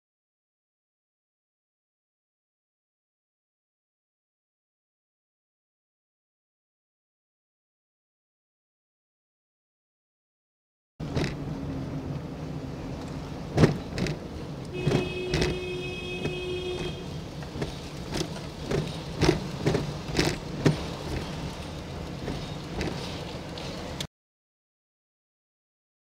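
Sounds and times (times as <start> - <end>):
knocks and rattles from bumps: 11.0 - 11.5, 13.0 - 24.1
car engine and tyre hum: 11.0 - 24.1.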